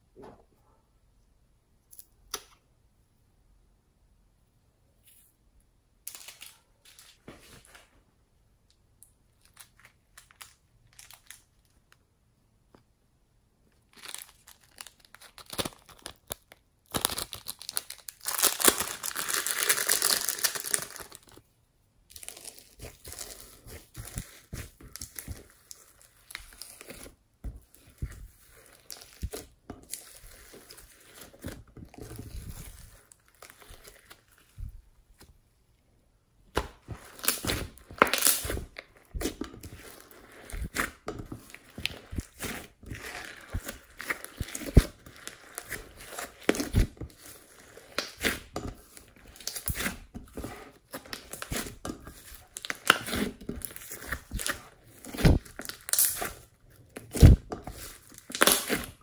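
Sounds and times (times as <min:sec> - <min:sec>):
hands squishing slime: 0:22.1 - 0:35.4, 0:36.5 - 0:59.0.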